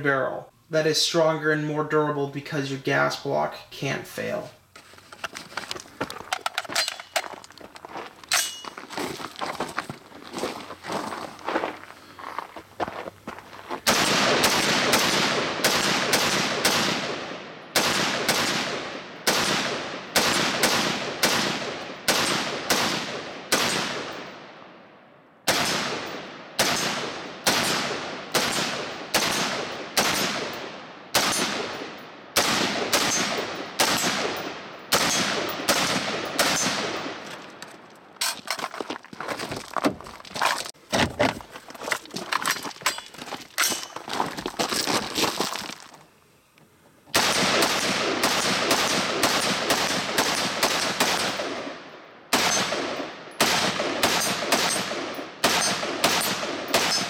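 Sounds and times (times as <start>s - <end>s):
rifle shots ringing: 13.9s - 24.5s, 25.5s - 37.6s, 47.2s - 57.0s.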